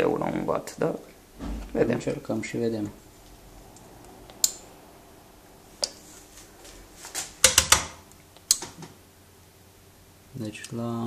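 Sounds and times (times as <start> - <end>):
faint steady hum: 0.0 - 11.0
sharp switch clicks: 3.8 - 4.6.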